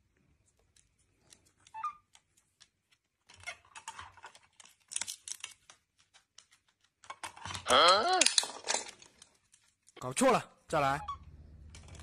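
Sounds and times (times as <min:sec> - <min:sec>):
small squeak: 0:01.7 - 0:02.2.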